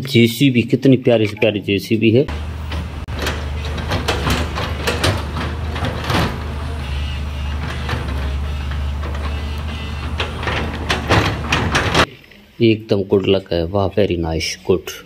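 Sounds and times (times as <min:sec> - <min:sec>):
diesel engine running: 0:02.3 - 0:12.1
metallic clanks and knocks: 0:02.3 - 0:12.1.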